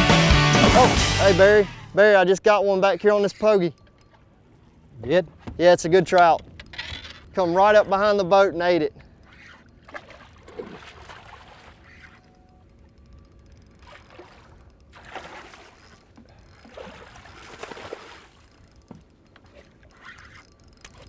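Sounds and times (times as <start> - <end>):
fish splashing at water surface: 13.8 - 18.5.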